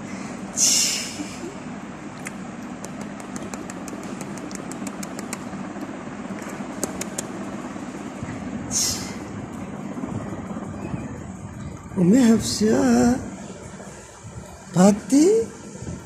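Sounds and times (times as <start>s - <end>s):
low machine hum: 0.0s - 16.0s
baby sucking fist wet clicks: 2.2s - 5.5s, 6.8s - 7.3s.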